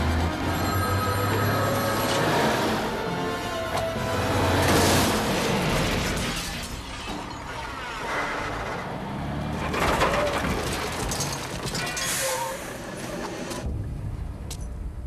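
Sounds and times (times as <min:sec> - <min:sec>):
truck crashing: 0:03.8 - 0:13.6
glass breaking: 0:09.7 - 0:12.3.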